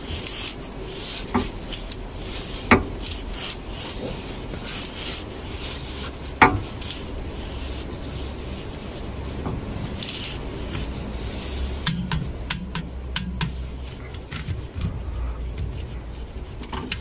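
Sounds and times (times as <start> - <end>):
low steady hum: 0.0 - 17.0
torque wrench clicking: 1.3 - 2.1, 10.0 - 10.4.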